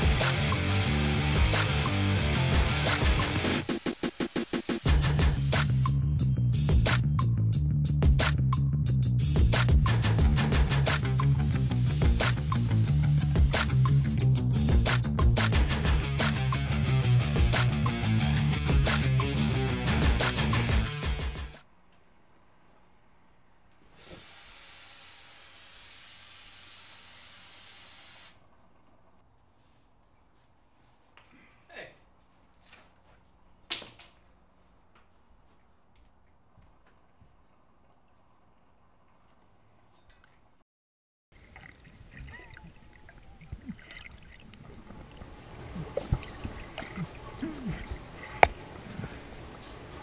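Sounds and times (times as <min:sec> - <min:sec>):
compressed gas hissing from valve: 0:03.4 - 0:05.5, 0:09.8 - 0:14.3, 0:23.9 - 0:28.4
underwater bubbles and water movement: 0:41.4 - 0:49.4
underwater knocks: 0:45.7 - 0:47.0.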